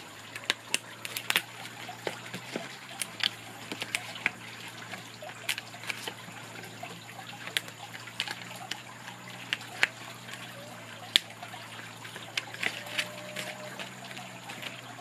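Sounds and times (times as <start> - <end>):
stiff paper crackling clicks: 0.2 - 6.2, 12.1 - 15.0
paper rustling: 12.1 - 15.0.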